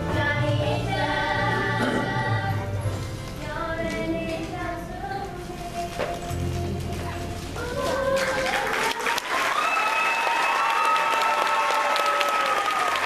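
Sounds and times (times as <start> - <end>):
audience applause: 8.1 - 13.0
audience cheering: 8.4 - 13.0.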